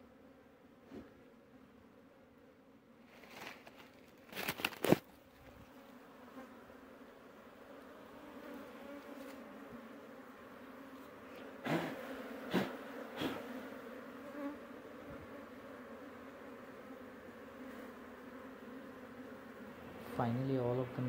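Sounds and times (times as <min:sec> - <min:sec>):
bees buzzing: 0:04.7 - 0:21.0.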